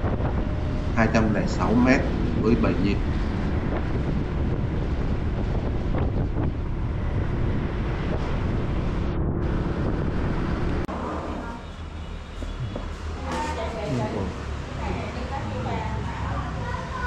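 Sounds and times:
wind buffeting microphone: 0.0s - 10.9s
motorcycle road noise: 0.0s - 17.0s.

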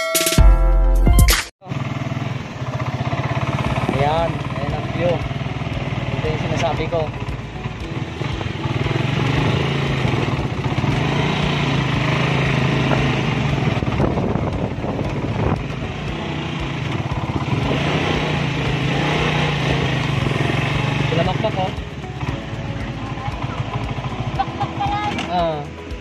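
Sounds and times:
small motorcycle engine running: 1.6s - 26.0s.

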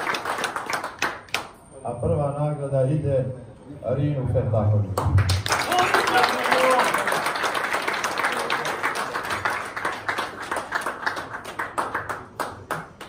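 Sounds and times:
crowd applause: 0.0s - 1.5s, 5.2s - 13.0s.

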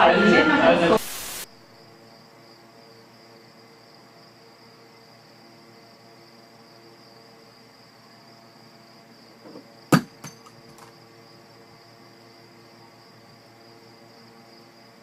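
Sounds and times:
cat knocking object on wood: 9.5s - 10.9s.

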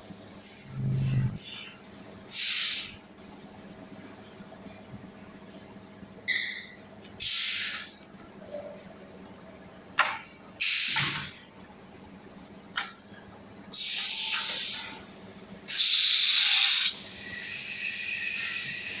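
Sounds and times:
steady machine hum: 0.0s - 13.8s.

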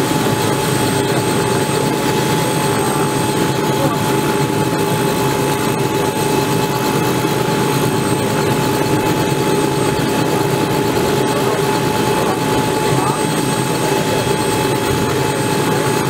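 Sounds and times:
helicopter rotor and engine rush: 0.0s - 16.0s
helicopter turbine whine: 0.0s - 16.0s.

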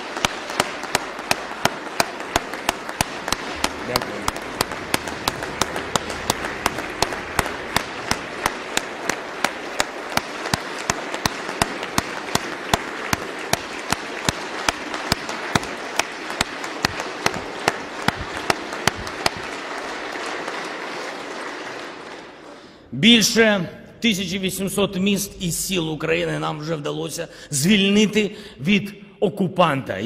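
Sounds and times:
audience applauding: 0.0s - 23.6s
unison rhythmic clapping: 0.0s - 23.6s.

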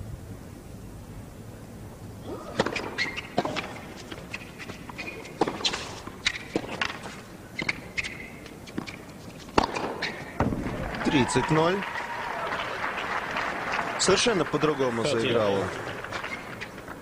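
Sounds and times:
shoe squeaks: 2.2s - 10.4s, 16.2s - 16.8s
tennis racquets hitting ball: 2.2s - 11.3s.

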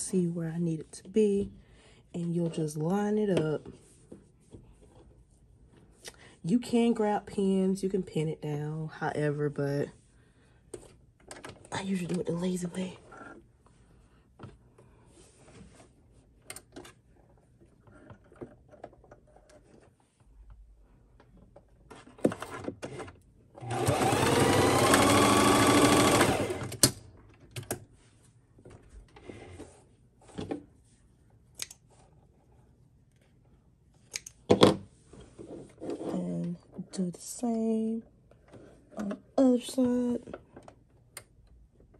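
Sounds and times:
sewing machine running: 23.6s - 26.9s.

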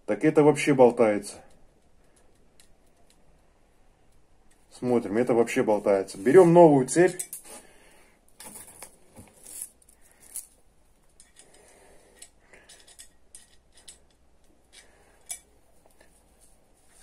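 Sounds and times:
metal chain clinking and rattling: 8.4s - 15.5s.

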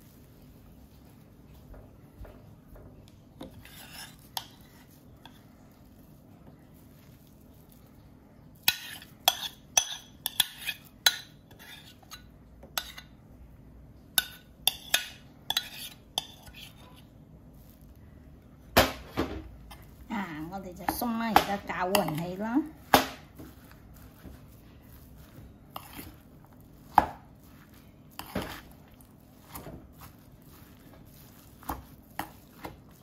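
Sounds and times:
metal spoon scraping ceramic bowl: 3.4s - 5.4s, 8.6s - 13.1s, 14.2s - 17.1s, 25.7s - 26.2s.

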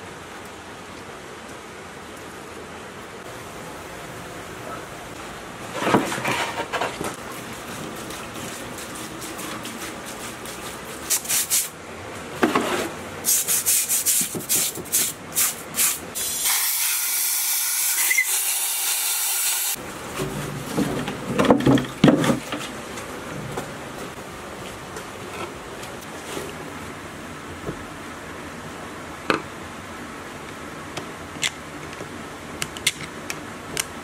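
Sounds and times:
brush scrubbing metal: 5.7s - 11.8s.

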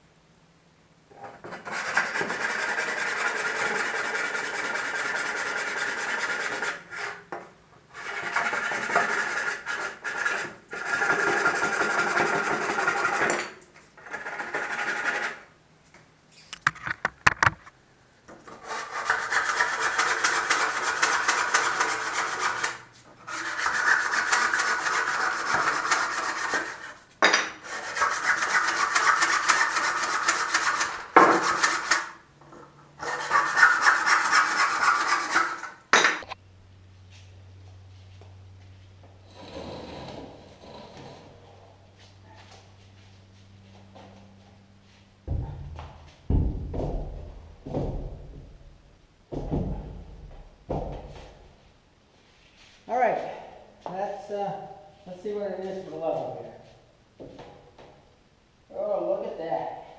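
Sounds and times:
handsaw cutting wood: 1.6s - 7.2s, 8.0s - 13.3s, 14.1s - 15.5s, 18.6s - 27.0s, 27.6s - 32.2s, 33.0s - 35.8s.

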